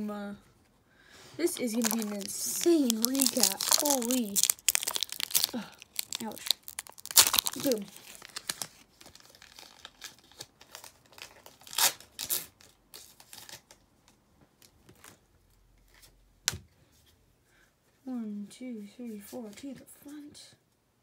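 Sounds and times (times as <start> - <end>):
foil pack crinkling and tearing: 1.4 - 13.7
rustling rips: 1.4 - 13.7.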